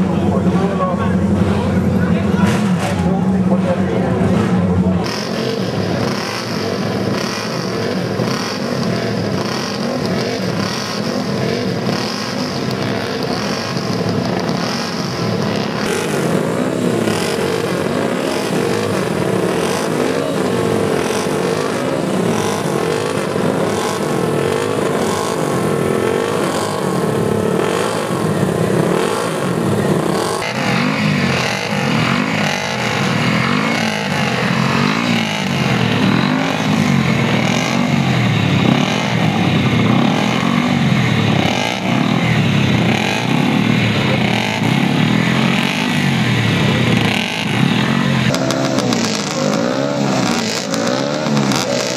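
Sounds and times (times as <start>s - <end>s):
motorcycle engines revving: 0.0s - 51.9s.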